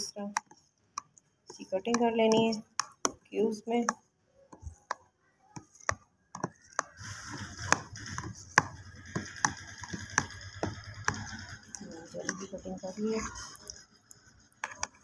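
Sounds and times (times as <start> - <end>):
knife slicing jelly: 0.0 - 12.5
knife tapping plastic box: 0.3 - 5.0.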